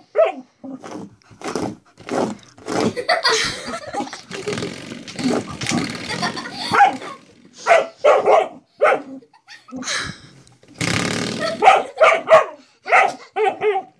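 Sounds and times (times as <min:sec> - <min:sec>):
young dog barking: 0:00.1 - 0:00.5, 0:06.6 - 0:07.0, 0:07.6 - 0:09.2, 0:11.6 - 0:13.9.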